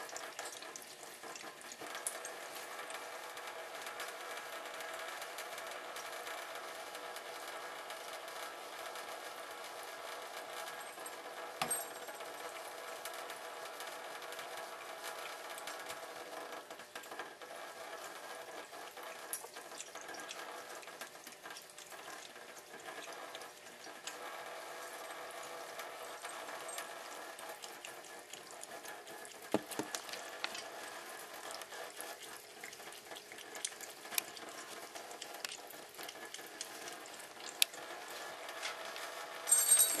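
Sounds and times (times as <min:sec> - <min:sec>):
tap water trickling into sink: 0:25.8 - 0:37.8.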